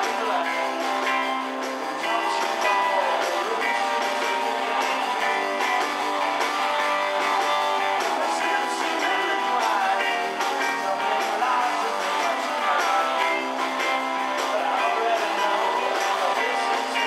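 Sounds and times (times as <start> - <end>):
man singing into microphone: 0.0 - 0.9, 2.0 - 5.0, 7.8 - 17.0
bass guitar: 0.0 - 17.0
drums: 0.0 - 17.0
electric guitars strumming: 0.0 - 17.0.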